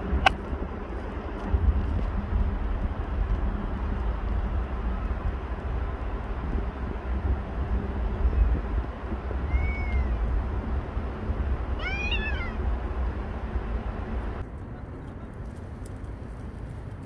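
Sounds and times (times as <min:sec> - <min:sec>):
steady low rumble: 0:00.0 - 0:17.0
cat meowing: 0:09.4 - 0:10.2, 0:11.8 - 0:12.6.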